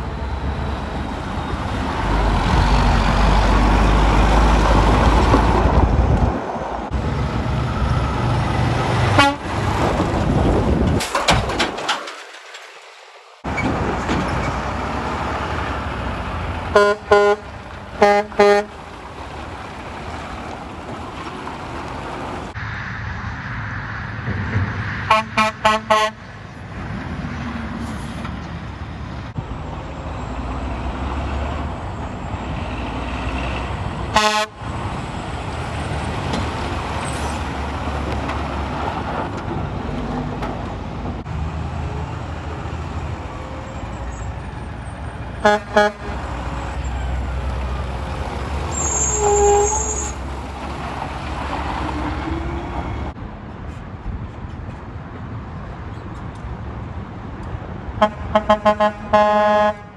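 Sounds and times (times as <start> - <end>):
diesel trucks rumbling past: 0.0 - 59.9
truck air horn toots: 9.1 - 9.6, 16.7 - 18.8, 25.1 - 26.3, 34.1 - 34.6, 45.4 - 46.3, 48.7 - 50.2, 58.0 - 59.9.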